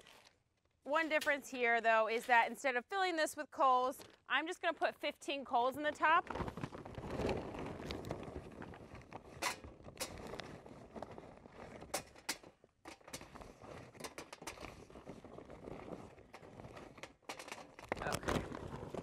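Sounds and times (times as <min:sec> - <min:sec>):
paper bag rustling: 0:06.0 - 0:11.9, 0:17.7 - 0:19.0
charcoal briquettes clacking into metal: 0:11.8 - 0:14.8, 0:16.3 - 0:18.3.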